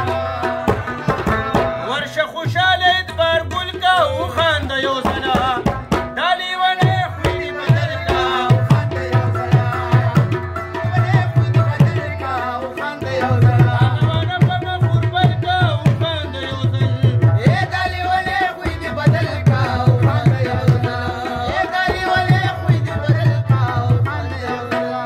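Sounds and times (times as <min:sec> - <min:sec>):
tabla drum strokes: 0:00.0 - 0:06.2
rubab melody: 0:00.0 - 0:25.0.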